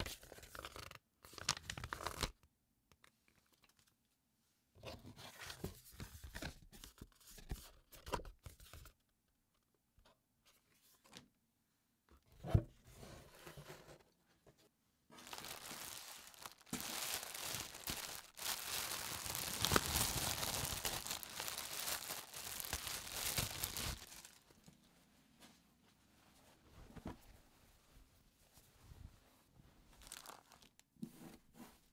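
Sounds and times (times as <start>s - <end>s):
plastic bag crinkling and tearing: 15.2s - 24.6s, 30.0s - 30.8s.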